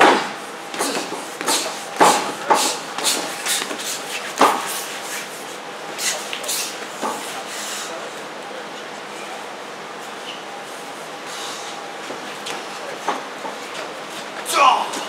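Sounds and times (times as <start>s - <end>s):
people shouting in a hall: 14.4s - 15.0s.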